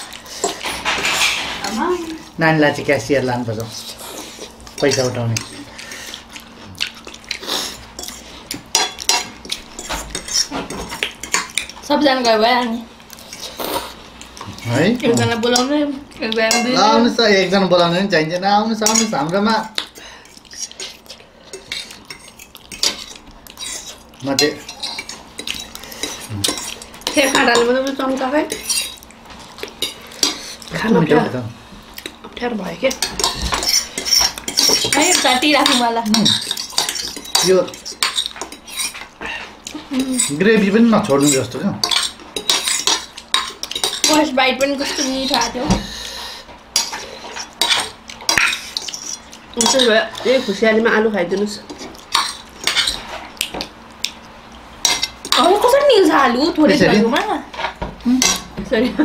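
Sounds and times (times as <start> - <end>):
forks scraping against plates: 0.1 - 2.0, 3.6 - 6.4, 7.3 - 17.1, 18.8 - 31.0, 32.8 - 50.7, 51.4 - 53.4.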